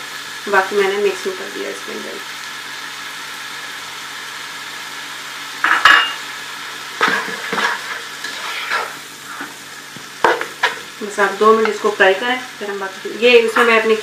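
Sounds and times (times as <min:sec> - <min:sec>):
food sizzling in a pan: 0:00.0 - 0:14.0
utensil clanking against pan: 0:07.0 - 0:08.9, 0:10.2 - 0:10.8
scraping and clatter of stirring: 0:07.0 - 0:09.6.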